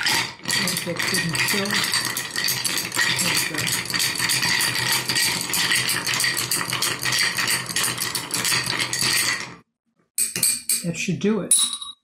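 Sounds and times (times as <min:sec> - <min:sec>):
ice cubes clinking in glass: 0:00.0 - 0:09.5.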